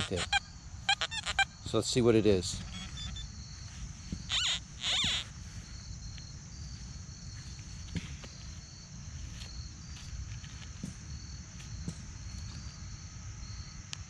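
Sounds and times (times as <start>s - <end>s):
insects chirring: 0.0s - 14.0s
gloved hands scuffing soil: 7.3s - 11.0s.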